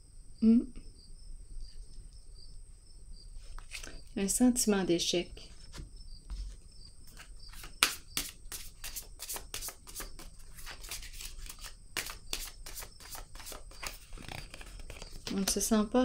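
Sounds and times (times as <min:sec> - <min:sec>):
cards being shuffled: 0:03.5 - 0:04.0, 0:05.5 - 0:15.7.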